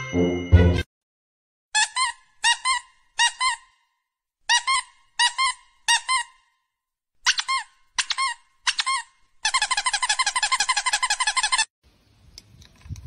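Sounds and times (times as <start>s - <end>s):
squeaky toy squeaks: 1.8s - 3.9s, 4.5s - 6.6s, 7.2s - 11.7s.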